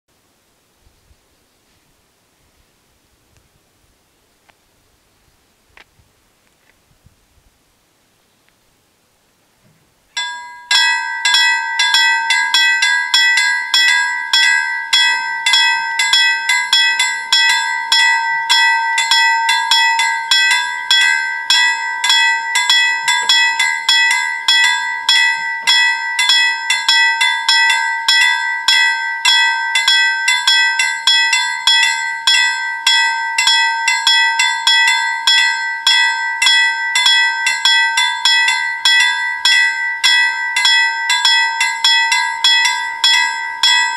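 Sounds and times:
level crossing warning bells: 10.2 - 43.9.

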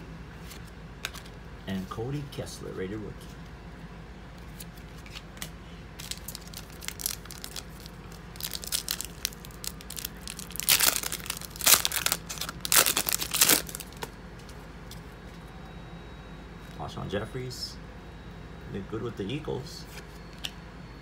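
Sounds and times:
foil wrapper tearing and crinkling: 6.0 - 14.1.

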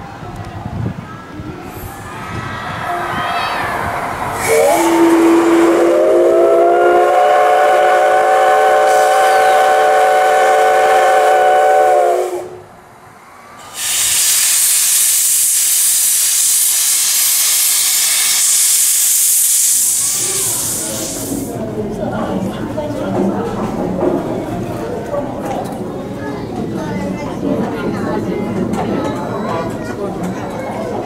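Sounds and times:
crowd chattering: 0.0 - 14.2, 19.8 - 31.0
steam hissing: 1.7 - 12.6, 13.3 - 21.7
steam locomotive whistle: 2.8 - 12.7, 13.7 - 21.5.

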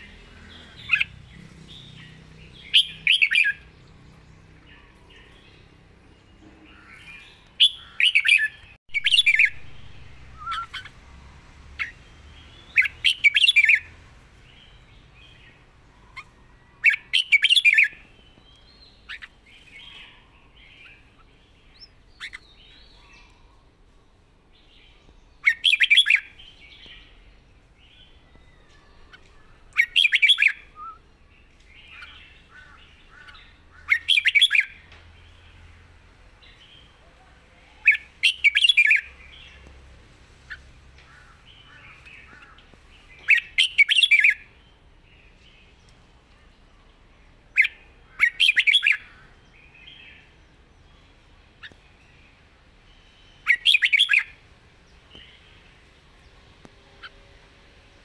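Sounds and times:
bird whistled song: 1.8 - 3.7, 6.8 - 10.9, 12.5 - 13.9, 16.2 - 20.2, 25.4 - 27.1, 28.0 - 31.2, 33.2 - 34.8, 37.8 - 39.1, 43.2 - 44.6, 47.6 - 49.2, 52.9 - 54.4.

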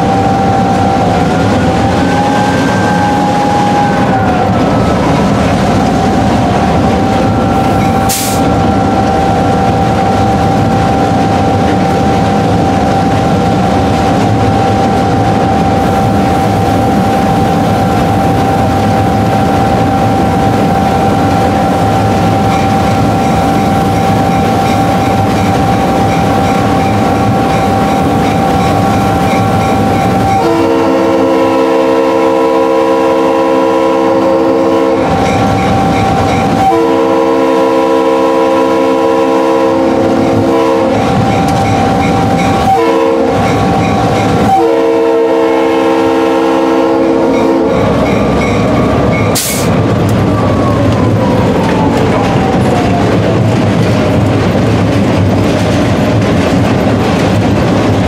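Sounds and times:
locomotive air horn: 0.0 - 5.1, 7.0 - 10.5, 24.8 - 48.0, 49.3 - 49.8
locomotive running with high whine: 0.0 - 58.0.

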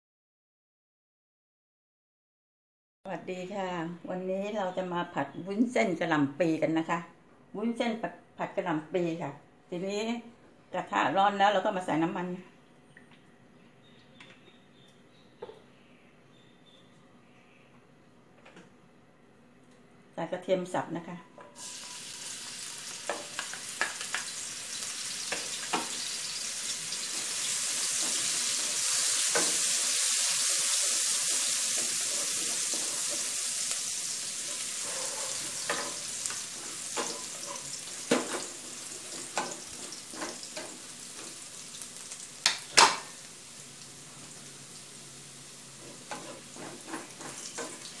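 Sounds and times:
garlic sizzling in oil: 21.6 - 48.0.

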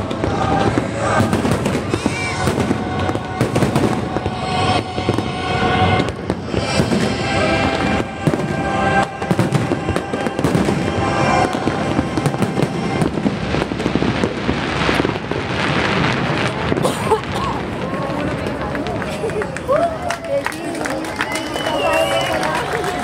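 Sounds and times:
show music: 0.0 - 16.4
fireworks bangs and crackling: 0.0 - 23.0.

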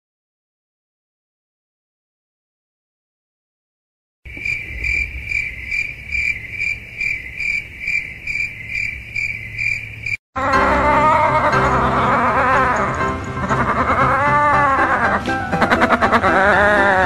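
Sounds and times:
cricket chirping: 4.3 - 10.2.

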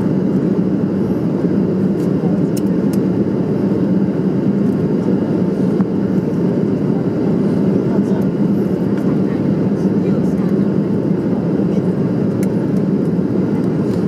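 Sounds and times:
jet engines droning: 0.0 - 14.0
steady low hum: 0.0 - 14.0.

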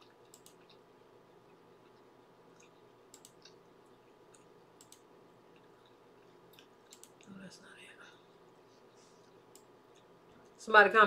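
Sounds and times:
faint room hum: 0.0 - 11.0
soft computer mouse clicks: 0.3 - 0.8, 2.6 - 3.6, 4.3 - 5.1, 6.5 - 7.3, 9.3 - 10.1.

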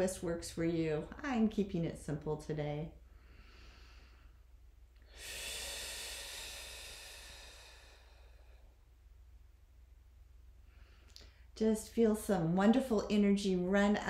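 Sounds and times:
woman breathing deeply: 3.0 - 9.0, 10.5 - 11.6.

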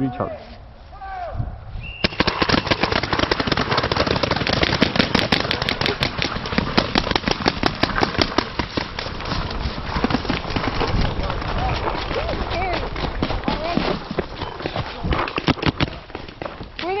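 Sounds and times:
paintball markers firing: 2.0 - 11.0, 15.1 - 17.0
running footsteps in dry leaves: 4.2 - 17.0.

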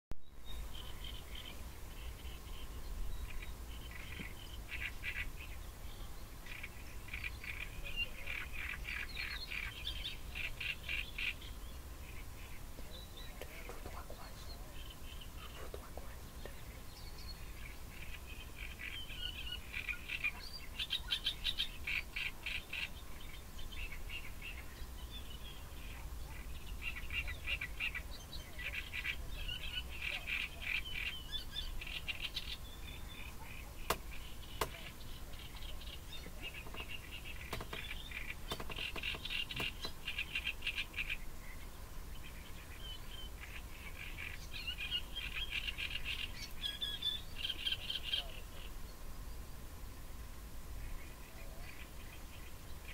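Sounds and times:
birds chirping: 0.2 - 52.9
sharp clicks: 36.6 - 40.0.

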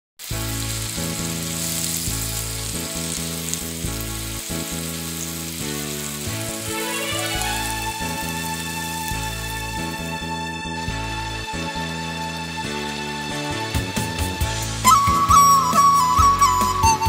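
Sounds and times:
steaks sizzling in a pan: 0.2 - 10.1
background music of held chords: 0.2 - 17.0.

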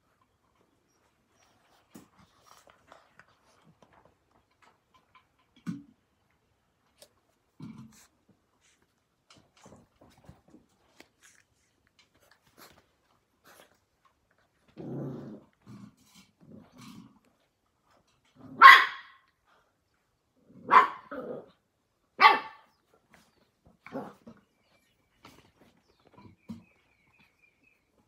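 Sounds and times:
puppy growling: 14.5 - 17.3, 20.5 - 21.6
puppy grumbling: 14.7 - 17.2
puppy barking: 18.5 - 19.2, 20.6 - 21.2, 22.2 - 22.7.

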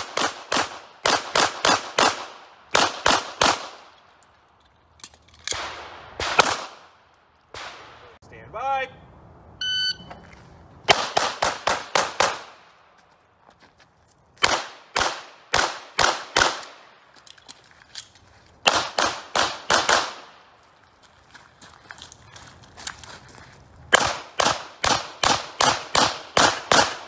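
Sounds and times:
pistol shots: 0.0 - 3.9, 5.5 - 6.9, 7.5 - 8.1, 10.9 - 12.6, 14.4 - 16.9, 18.6 - 20.4, 23.9 - 27.0
shot timer beep: 9.6 - 10.2.

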